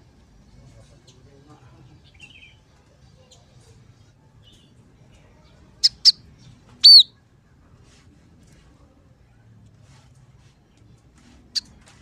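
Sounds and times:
bird chirping calls: 0:05.8 - 0:07.1.

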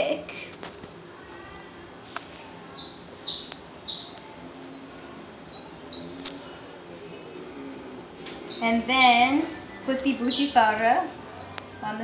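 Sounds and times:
bird chirping: 0:02.8 - 0:06.6, 0:07.7 - 0:11.2.

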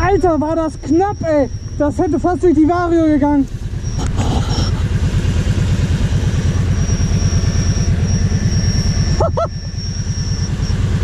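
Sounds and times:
high whine: 0:00.0 - 0:11.0
quad engine idling: 0:00.0 - 0:11.0
short chirps: 0:03.8 - 0:04.8.

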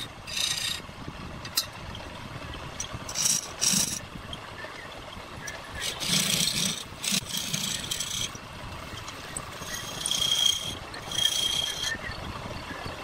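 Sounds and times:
chisel scraping wood on lathe: 0:00.0 - 0:00.8, 0:02.8 - 0:04.0, 0:05.7 - 0:12.0
lathe running: 0:00.0 - 0:00.8, 0:02.9 - 0:04.0, 0:05.6 - 0:12.0.

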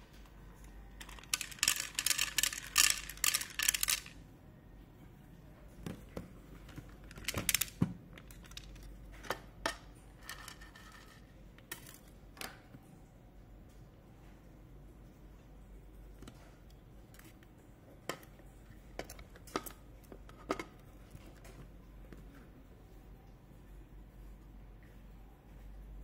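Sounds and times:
kibble rattling into plastic bowl: 0:01.0 - 0:04.2, 0:06.7 - 0:08.8.

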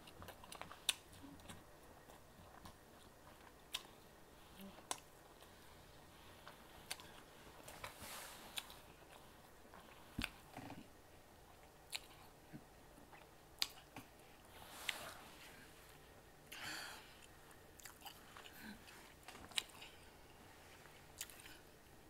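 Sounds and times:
person chewing: 0:00.0 - 0:10.9, 0:11.6 - 0:15.2, 0:15.9 - 0:20.2, 0:21.1 - 0:21.9.

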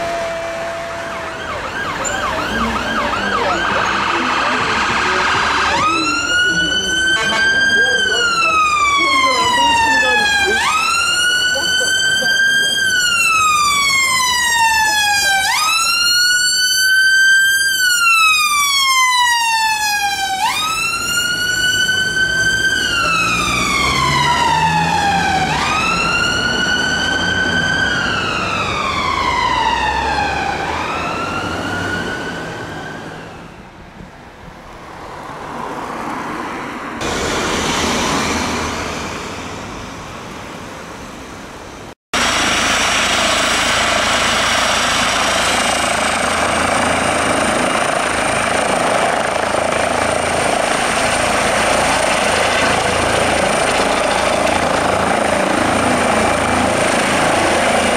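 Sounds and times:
ambulance wail siren: 0:00.0 - 0:33.8, 0:42.1 - 0:57.9
helicopter turbine and rotor: 0:42.2 - 0:57.9.

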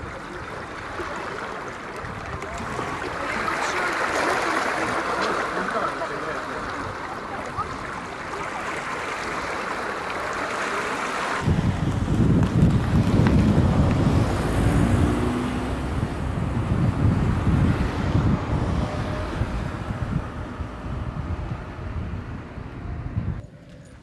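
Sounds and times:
wind buffeting microphone: 0:00.0 - 0:05.4, 0:11.4 - 0:23.4
waves washing on pebble shore: 0:00.0 - 0:14.6.

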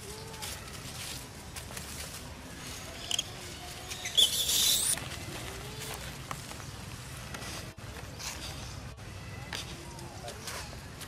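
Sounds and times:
monkeys scampering over dry leaves: 0:00.0 - 0:06.6
faint monkey calls: 0:02.9 - 0:05.0
short high squeak: 0:04.0 - 0:05.0.

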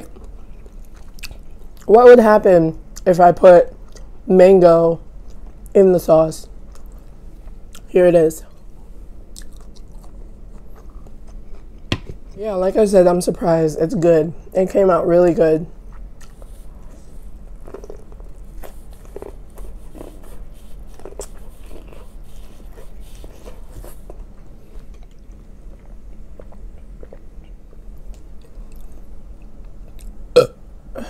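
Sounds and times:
chewing corn on the cob: 0:00.0 - 0:01.9, 0:09.3 - 0:11.8, 0:15.9 - 0:30.5.

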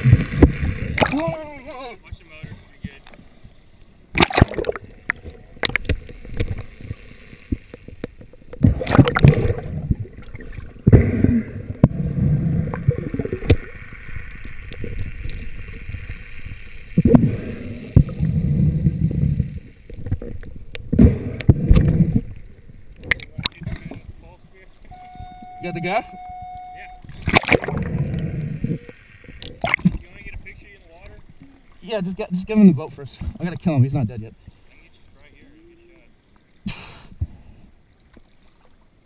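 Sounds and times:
splash going underwater: 0:00.0 - 0:01.3, 0:04.1 - 0:07.9, 0:08.5 - 0:22.4, 0:27.1 - 0:30.0
muffled underwater rushing water: 0:00.0 - 0:39.0
faint high hum: 0:24.8 - 0:28.2.

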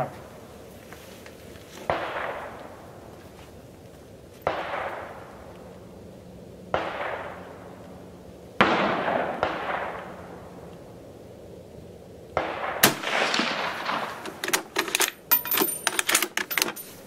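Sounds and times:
rifle shots echoing: 0:01.9 - 0:02.6, 0:04.4 - 0:05.2, 0:06.7 - 0:07.6, 0:08.6 - 0:10.4, 0:12.4 - 0:16.8.

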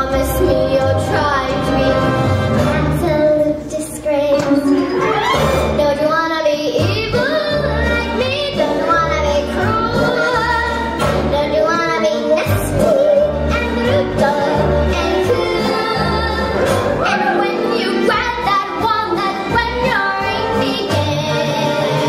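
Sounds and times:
girl singing into a microphone: 0:02.8 - 0:04.7, 0:05.7 - 0:22.0
backing music with pulsing bass: 0:12.4 - 0:22.0.

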